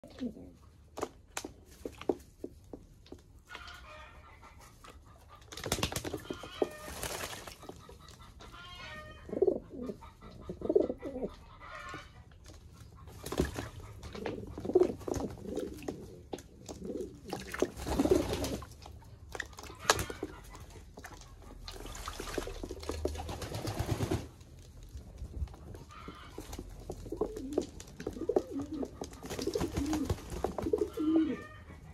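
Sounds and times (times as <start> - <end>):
pigeons cooing: 0.0 - 0.6, 8.9 - 11.6, 13.3 - 18.6, 27.0 - 31.9
wings flapping: 5.5 - 7.7, 17.7 - 18.7, 21.8 - 24.4, 25.9 - 31.2
water splashing: 17.1 - 23.7.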